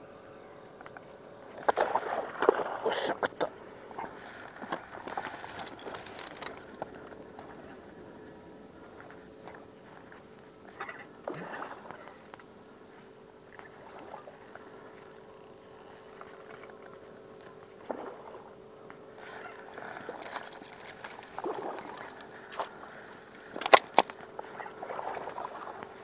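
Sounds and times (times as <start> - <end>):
faint steady hum: 0.0 - 26.0
water splashing: 19.4 - 22.7.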